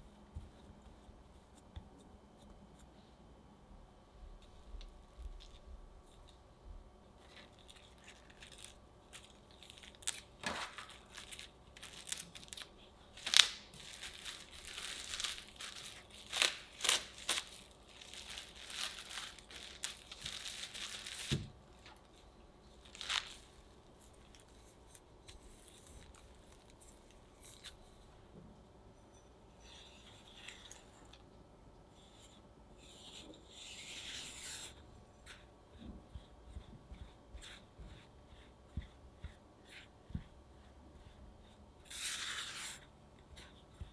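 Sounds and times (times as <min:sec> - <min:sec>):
plastic cling wrap crinkling: 0:07.2 - 0:27.7.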